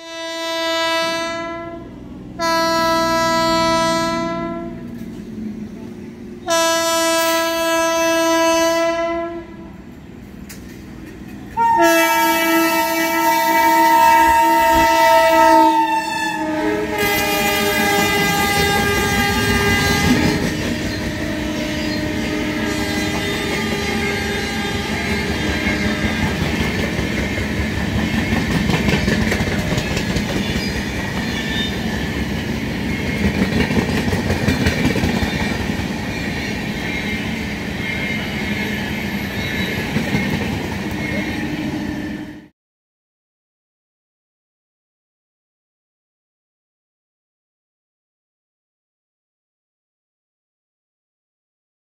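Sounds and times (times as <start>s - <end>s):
locomotive horn blasts: 0.0s - 5.0s, 6.4s - 9.9s, 11.6s - 26.4s
train coaches rumbling past: 0.0s - 42.5s
wheels clacking over rail joints: 17.9s - 36.9s.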